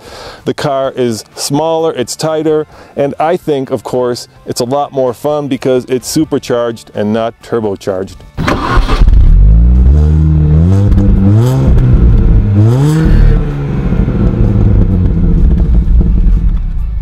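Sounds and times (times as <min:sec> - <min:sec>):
car engine revving: 0:08.4 - 0:16.8
car engine idling: 0:08.4 - 0:17.0.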